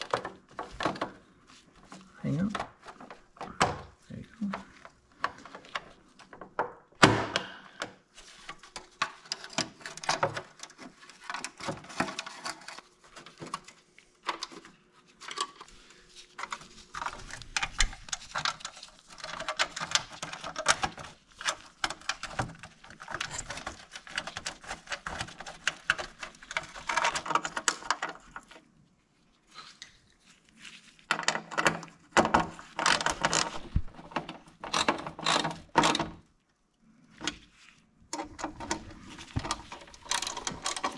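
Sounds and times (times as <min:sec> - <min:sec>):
plastic trim clicking and rustling: 0:16.4 - 0:28.5, 0:38.1 - 0:40.9.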